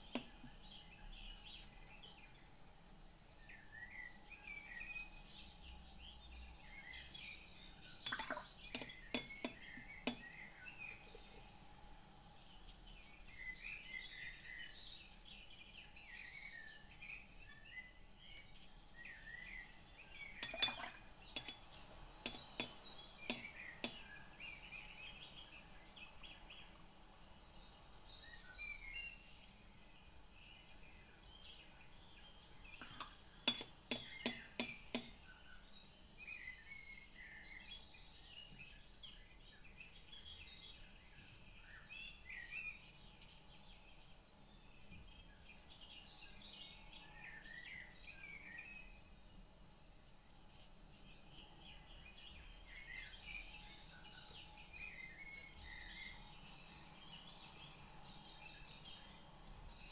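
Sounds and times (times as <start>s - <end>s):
light hard clinks: 8.1s - 10.3s, 20.4s - 24.1s, 32.8s - 35.2s.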